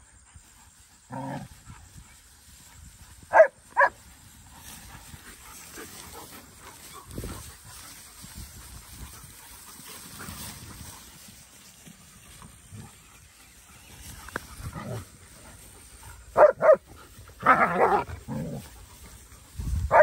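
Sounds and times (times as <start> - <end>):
rustling through grass: 0.0 - 20.0
dogs barking: 3.3 - 4.0, 16.2 - 18.7.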